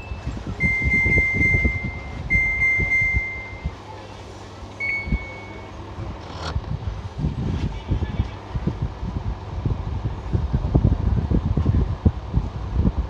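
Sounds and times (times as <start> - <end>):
washing machine buzzer beeping: 0.0 - 3.8, 4.8 - 5.8.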